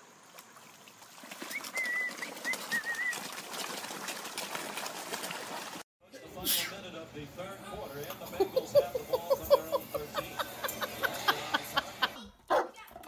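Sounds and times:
fish thrashing and splashing: 0.1s - 5.8s.

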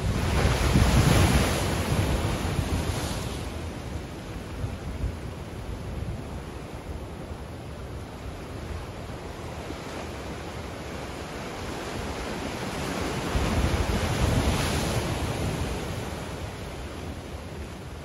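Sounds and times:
waves washing against rocky shore: 0.0s - 5.4s, 10.0s - 18.0s
wind rumble on microphone: 0.0s - 18.0s.

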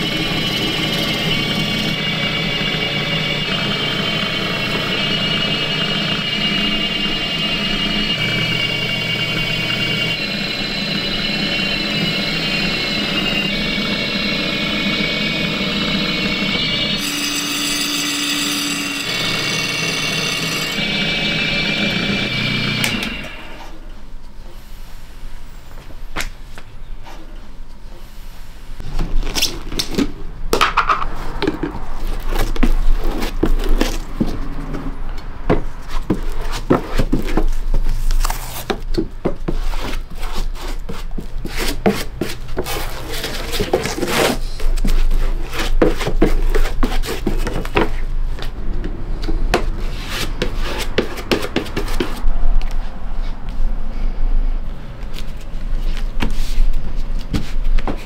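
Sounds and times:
machine whining and humming: 0.0s - 24.2s.

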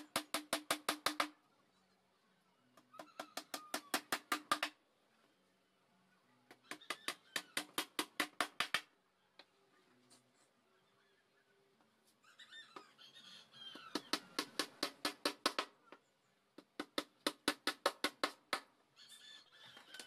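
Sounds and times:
hammer tapping nails into wood: 0.0s - 1.3s, 3.4s - 4.8s, 6.8s - 8.9s, 14.1s - 15.7s, 16.6s - 18.7s.

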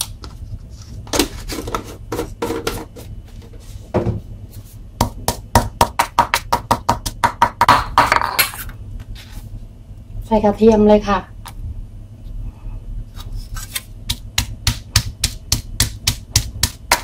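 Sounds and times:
stone pestle pounding in mortar: 5.0s - 8.4s, 14.1s - 17.0s.

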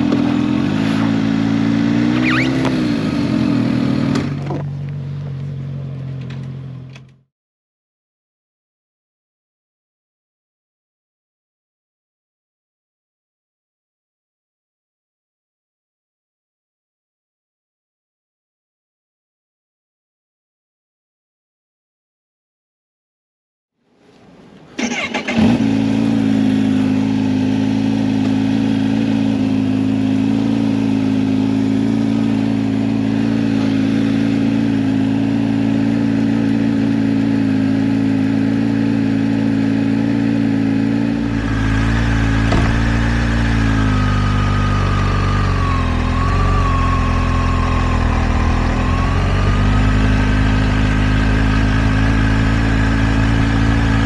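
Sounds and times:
motorcycle engine idling: 41.2s - 54.0s.

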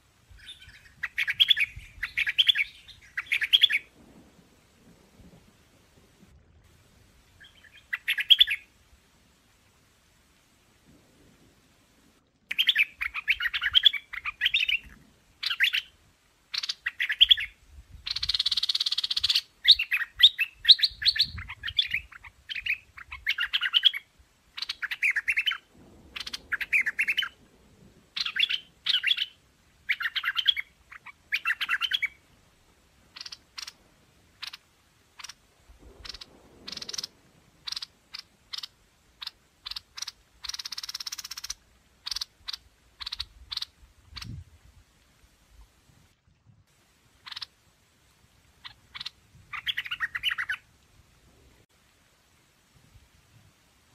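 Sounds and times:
bird singing bubbly phrases: 0.4s - 3.9s, 7.4s - 8.7s, 12.5s - 27.4s, 28.2s - 32.2s, 35.2s - 44.4s, 48.6s - 50.7s.

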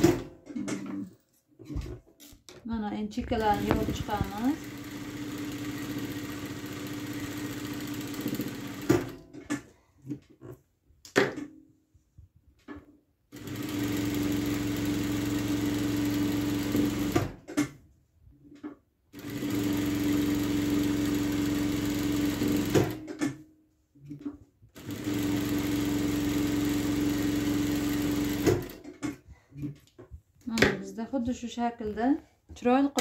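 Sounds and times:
sewing machine stitching: 3.3s - 9.7s, 13.3s - 17.7s, 19.1s - 23.4s, 24.8s - 29.8s.

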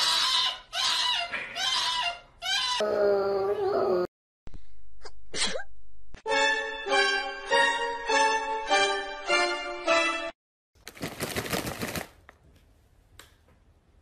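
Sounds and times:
music: 6.3s - 10.4s.

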